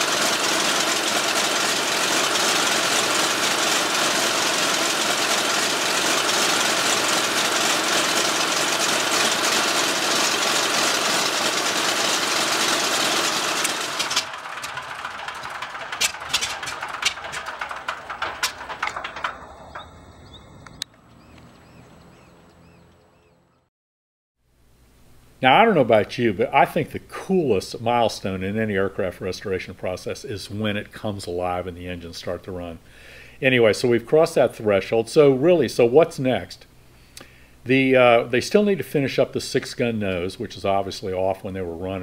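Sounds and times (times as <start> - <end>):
radial engine running: 0.0 - 23.4
sharp clicks and pops: 13.2 - 21.5.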